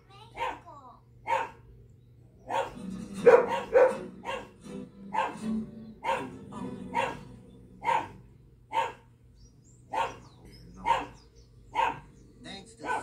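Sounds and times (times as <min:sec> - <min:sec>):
dog barking: 0:00.3 - 0:01.7, 0:02.5 - 0:05.4, 0:06.0 - 0:09.1, 0:09.9 - 0:12.2, 0:12.8 - 0:13.0.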